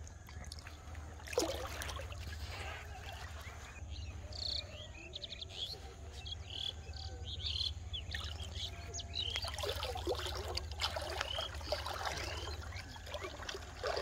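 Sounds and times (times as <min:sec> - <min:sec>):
small birds chirping: 0:00.1 - 0:14.0
river water splash: 0:00.5 - 0:03.4, 0:09.2 - 0:14.0.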